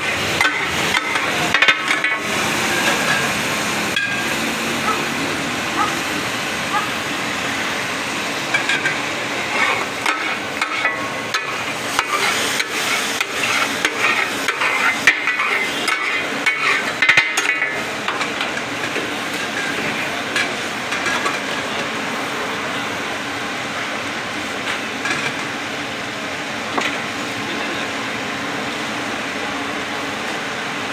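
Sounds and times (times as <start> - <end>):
meat sizzling on a griddle: 0.0 - 21.6
spatulas clattering on griddle: 0.1 - 3.3, 8.5 - 21.6, 24.7 - 25.4.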